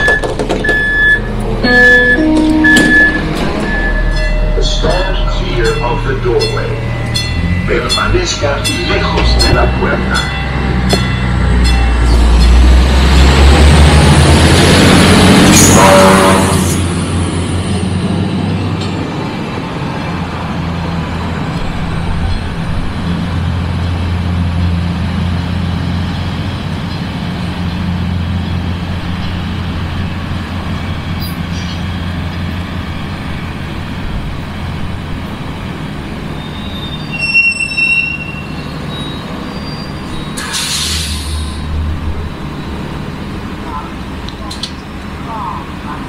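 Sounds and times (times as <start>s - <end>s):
train engine drone: 0.0s - 46.0s
brief high squeal: 36.4s - 41.6s.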